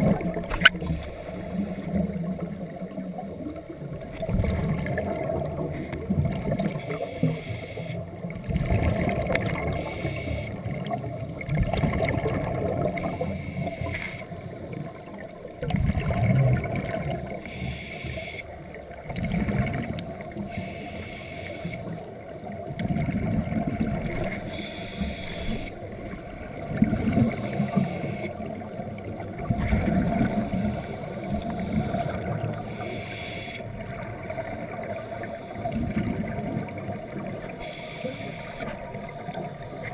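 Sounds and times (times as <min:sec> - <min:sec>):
exhaled bubbles rushing underwater: 0:00.0 - 0:17.8, 0:18.5 - 0:20.8, 0:21.5 - 0:39.9
underwater hum: 0:00.0 - 0:39.9.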